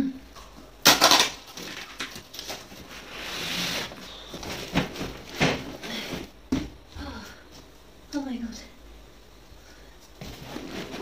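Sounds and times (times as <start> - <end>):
packing tape ripping: 0.8 - 4.0
cardboard knocks and rustles: 4.3 - 6.8.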